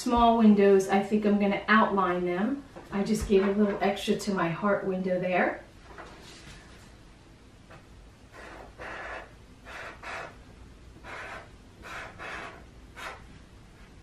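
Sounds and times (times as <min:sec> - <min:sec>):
marker scratching on paper: 0:08.3 - 0:10.4, 0:11.0 - 0:13.3.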